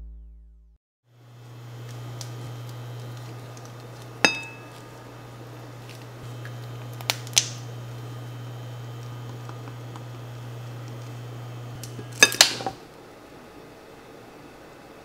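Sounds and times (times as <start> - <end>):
steady low hum: 1.1 - 15.0
metallic clink on frying pan: 4.2 - 4.7.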